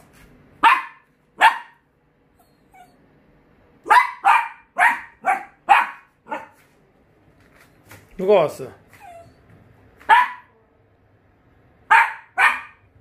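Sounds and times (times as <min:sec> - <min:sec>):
dog barking: 0:00.6 - 0:01.8, 0:03.8 - 0:06.6, 0:10.0 - 0:10.6, 0:11.9 - 0:12.9.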